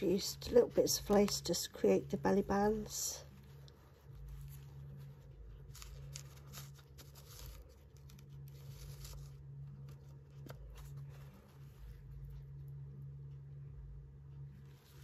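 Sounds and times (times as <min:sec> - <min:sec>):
low steady hum: 0:00.0 - 0:15.0
paper rustling and crackling: 0:02.7 - 0:12.4.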